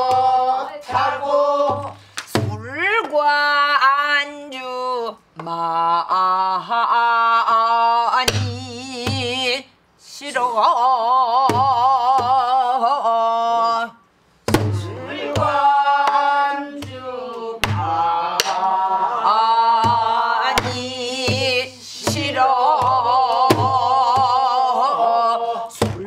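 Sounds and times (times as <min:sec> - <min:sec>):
woman singing with vibrato: 0:00.0 - 0:14.0, 0:14.8 - 0:25.8
barrel drum strokes: 0:14.5 - 0:16.2, 0:17.6 - 0:18.6, 0:19.8 - 0:24.4.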